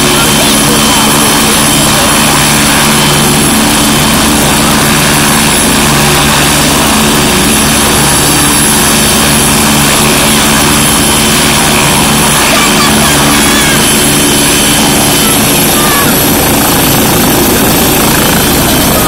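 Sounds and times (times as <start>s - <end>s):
helicopter running on ground: 0.0s - 19.0s.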